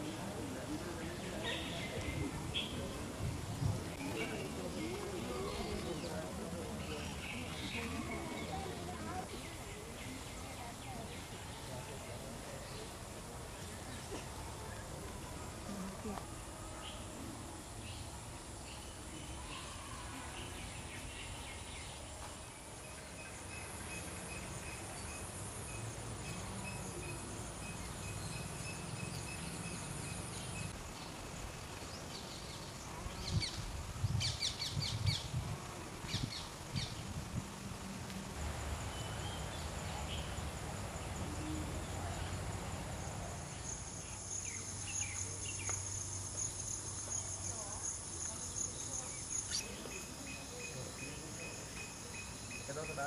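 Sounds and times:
insects chirring: 38.2s - 53.0s.

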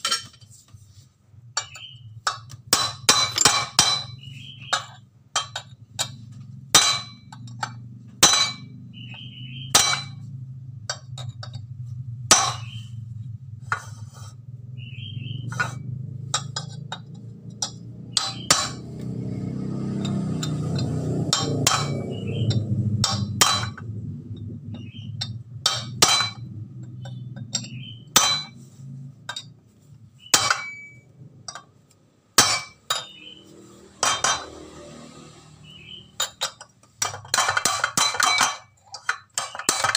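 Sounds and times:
low steady hum: 0.0s - 34.8s
hammer clinking on metal rod: 1.6s - 6.2s, 6.8s - 10.3s, 16.4s - 19.0s, 19.9s - 23.8s, 24.8s - 28.6s, 30.3s - 31.7s, 32.4s - 33.4s, 36.2s - 39.9s.

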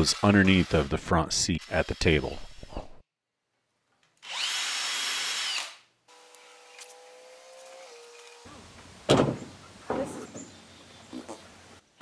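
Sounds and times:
power drill: 0.0s - 1.0s, 1.6s - 2.8s, 4.2s - 8.5s
loud thump: 9.1s - 10.2s.

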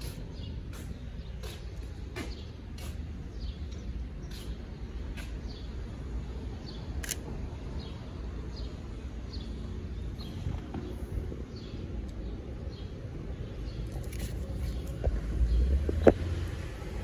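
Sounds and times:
camera shutter clicking: 7.0s - 7.2s.

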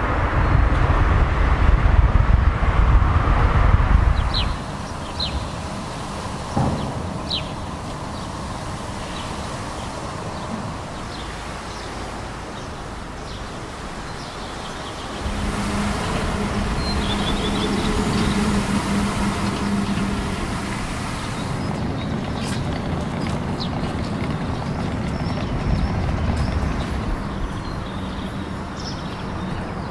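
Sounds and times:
vehicle noise: 0.0s - 29.9s
low vehicle motor hum: 9.9s - 29.9s.

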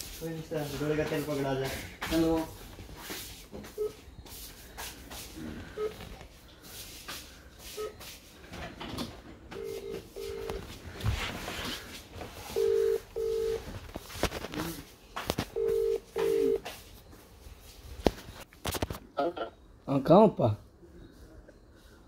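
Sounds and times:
phone ringback tone: 9.5s - 10.6s, 12.5s - 13.7s, 15.6s - 16.6s.

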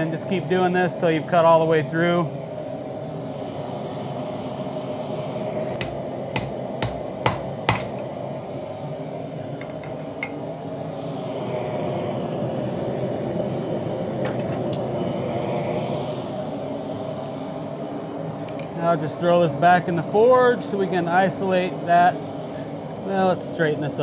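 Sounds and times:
steady background hum: 0.0s - 24.0s
hammer striking steel on anvil: 5.8s - 8.0s.

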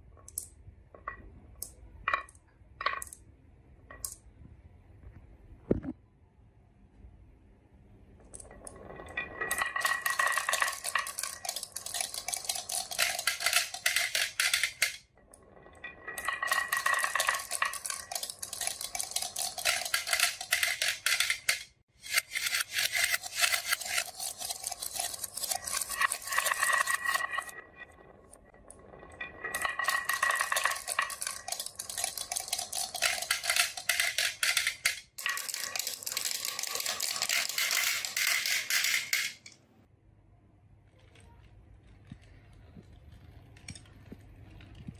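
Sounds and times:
marbles clattering on wooden tracks: 0.2s - 3.2s, 8.2s - 39.6s
marbles rolling: 0.2s - 3.2s, 8.2s - 39.6s.

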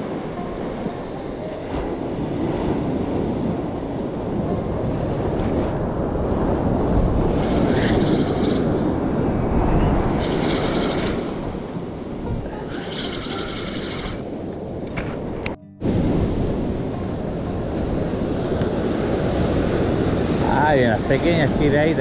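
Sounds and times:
sea surf: 0.0s - 22.0s
wind on microphone: 0.0s - 22.0s
high whirring noise: 7.2s - 11.8s.

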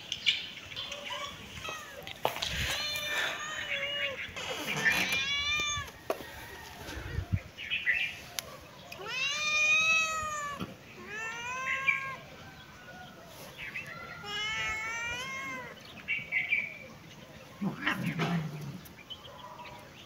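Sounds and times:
cat meowing: 1.1s - 6.0s, 9.0s - 12.3s, 14.2s - 15.8s.

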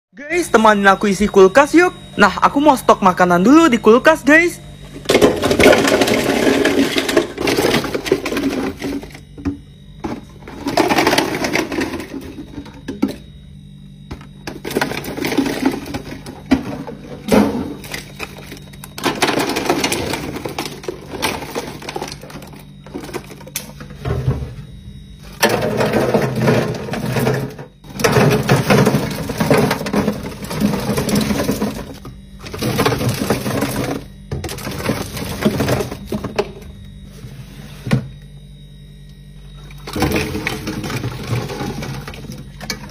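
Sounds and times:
candies clattering into plastic drawer: 14.6s - 23.5s.

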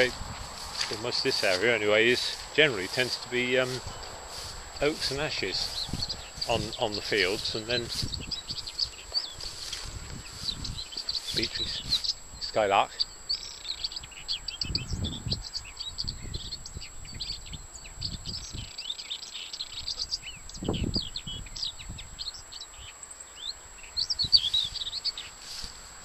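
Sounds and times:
skylark singing: 0.0s - 25.8s
low rumbles on microphone: 3.7s - 12.5s.

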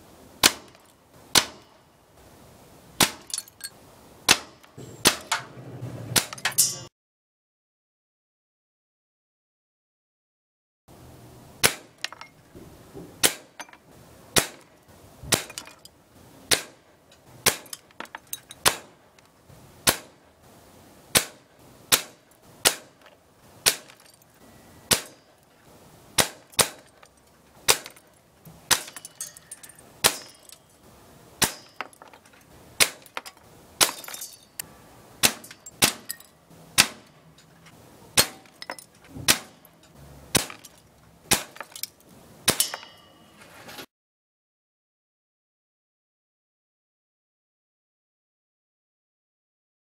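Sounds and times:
air gun shots: 0.4s - 1.7s, 4.3s - 6.6s, 11.6s - 12.0s, 13.2s - 13.6s, 14.4s - 14.7s, 15.3s - 15.6s, 16.5s - 16.8s, 17.4s - 17.7s, 18.6s - 19.0s, 19.8s - 20.2s, 21.1s - 23.0s, 23.6s - 24.0s, 24.9s - 25.2s, 26.2s - 26.8s, 27.6s - 28.0s, 30.0s - 30.4s, 31.4s - 31.8s, 32.8s - 33.0s, 35.2s - 36.1s, 36.8s - 37.1s, 39.1s - 39.7s, 40.3s - 40.6s, 41.3s - 41.6s, 42.4s - 43.0s.

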